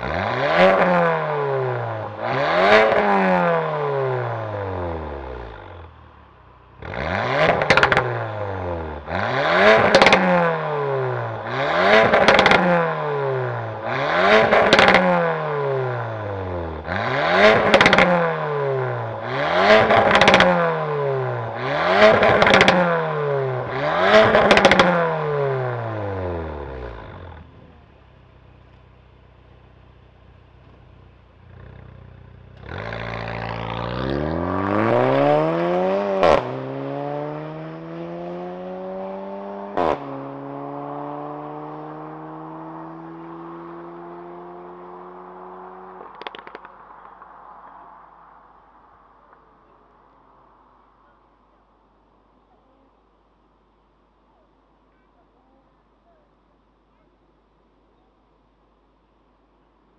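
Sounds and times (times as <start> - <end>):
car engine revving: 0.0 - 52.7
car engine idling: 25.8 - 32.6.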